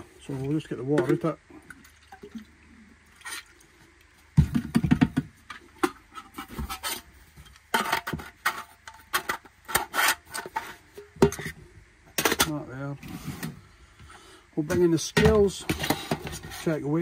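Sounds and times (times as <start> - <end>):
metal canteen knocks and thuds: 4.4 - 6.0.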